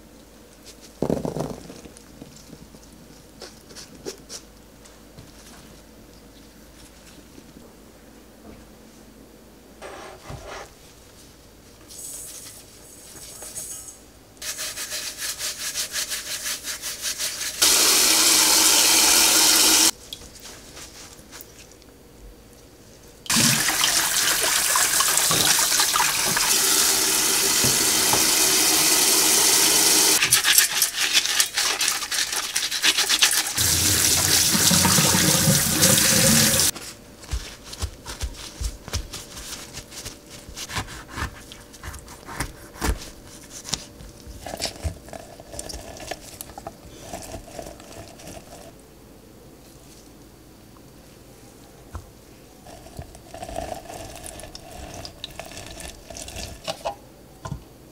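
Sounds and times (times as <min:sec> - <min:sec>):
scrubbing lemon with salt: 0:14.4 - 0:21.8, 0:29.2 - 0:48.8
knife cutting on wooden board: 0:40.6 - 0:43.8.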